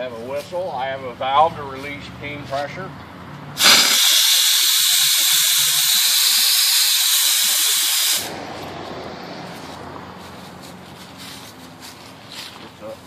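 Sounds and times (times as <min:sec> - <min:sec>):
steam hissing from release valve: 0:03.6 - 0:08.3.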